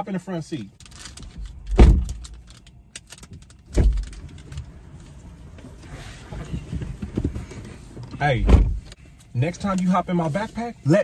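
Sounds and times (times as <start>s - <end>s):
car door shutting: 1.7s - 2.2s, 6.1s - 8.9s.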